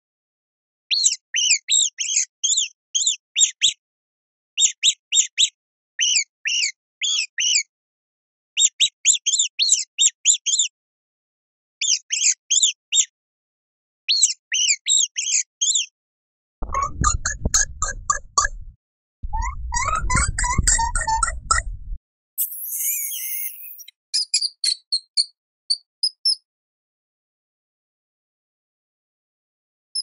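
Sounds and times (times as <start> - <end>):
mouse squeaking: 0.9 - 3.8, 4.6 - 7.7, 11.8 - 13.1, 14.1 - 15.9, 16.6 - 18.6, 19.2 - 21.8, 22.4 - 26.4.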